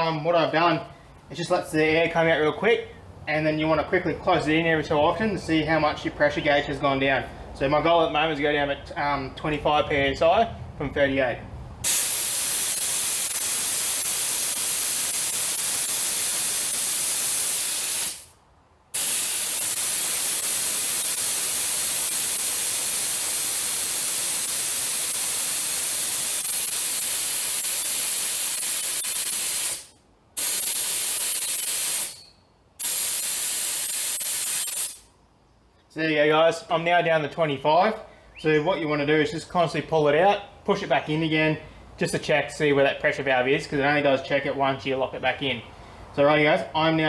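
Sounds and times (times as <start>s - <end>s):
air hissing out of a tyre: 11.8s - 35.1s.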